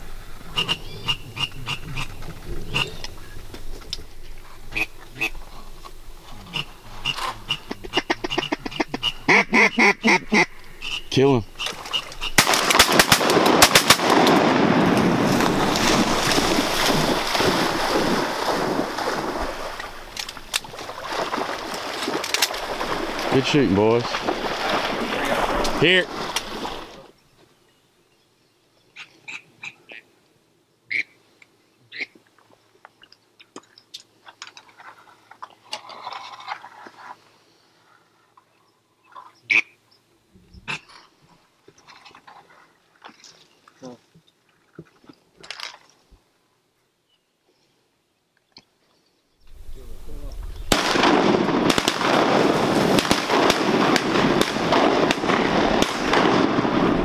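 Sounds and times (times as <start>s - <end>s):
duck quacking: 0.5s - 3.1s, 4.7s - 5.4s, 6.4s - 12.4s, 39.5s - 39.7s
rushing splashing water: 11.6s - 27.1s, 50.7s - 57.0s
shotgun shots: 12.4s - 18.2s, 50.7s - 57.0s.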